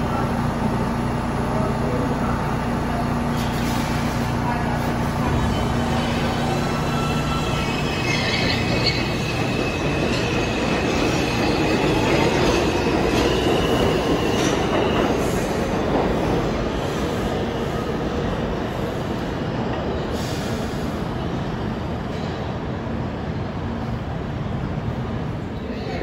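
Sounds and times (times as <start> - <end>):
train wheels rumbling on rail: 0.0 - 26.0
high-pitched wheel squeal: 5.2 - 11.6.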